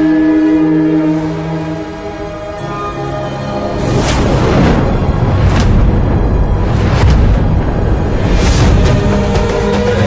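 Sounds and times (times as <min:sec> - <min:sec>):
background music: 0:00.0 - 0:10.0
deep booming hits: 0:04.4 - 0:09.1.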